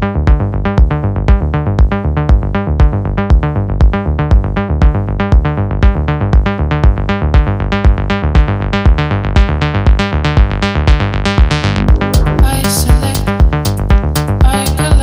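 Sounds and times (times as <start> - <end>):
kick drum: 0.3 - 10.0
repeating synthesizer notes: 11.5 - 13.6.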